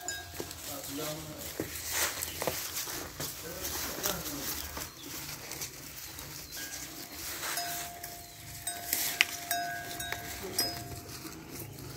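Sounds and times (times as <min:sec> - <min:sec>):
light metallic clinks: 0:06.5 - 0:11.9.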